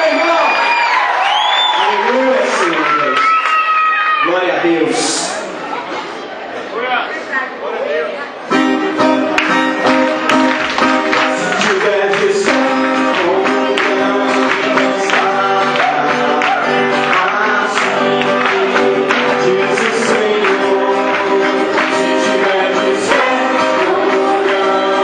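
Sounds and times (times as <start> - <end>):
acoustic guitar: 8.4 - 25.0
singing: 11.2 - 25.0.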